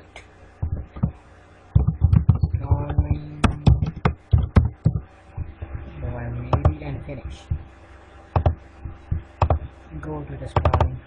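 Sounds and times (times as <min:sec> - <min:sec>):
keyboard key clicks: 0:08.4 - 0:08.6, 0:10.6 - 0:11.0.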